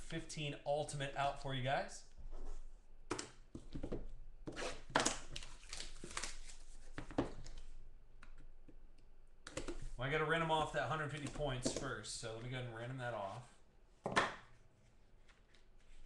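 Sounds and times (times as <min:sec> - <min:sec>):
plastic shrink wrap tearing: 0:04.8 - 0:06.6.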